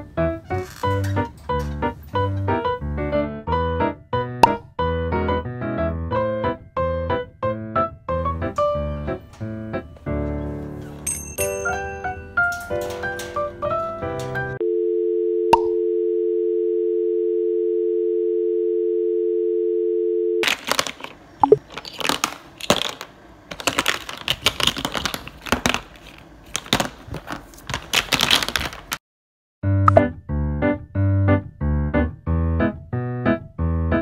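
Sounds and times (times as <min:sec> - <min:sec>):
two-note dial tone: 0:14.6 - 0:20.4
toy blocks clattering on table: 0:20.4 - 0:29.0.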